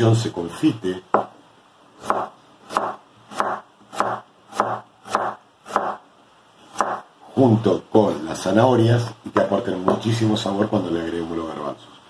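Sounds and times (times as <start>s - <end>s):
knife slicing onion on wooden board: 2.0s - 6.0s, 6.7s - 7.1s.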